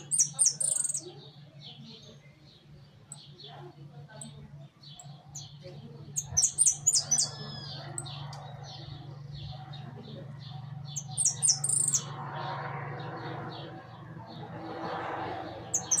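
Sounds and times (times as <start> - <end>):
soft bird chirps: 0.0 - 14.6, 15.4 - 16.0
finch sharp high calls: 6.2 - 12.5.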